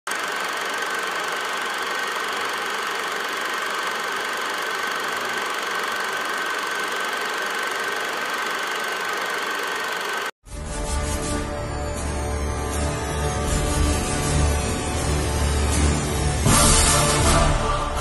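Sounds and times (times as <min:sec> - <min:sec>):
film projector whirring and clattering: 0:00.1 - 0:10.4.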